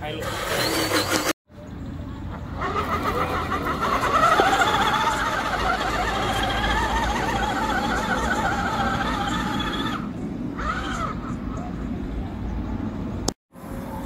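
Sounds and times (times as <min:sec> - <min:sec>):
electric motor and gearbox whining: 0:00.0 - 0:01.4, 0:02.6 - 0:10.1.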